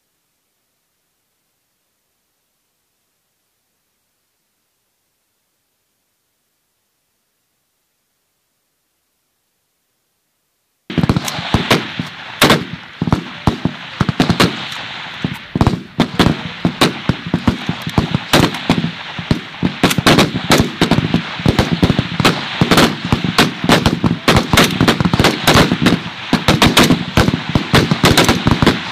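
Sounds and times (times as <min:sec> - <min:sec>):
rifles firing: 0:10.9 - 0:28.9.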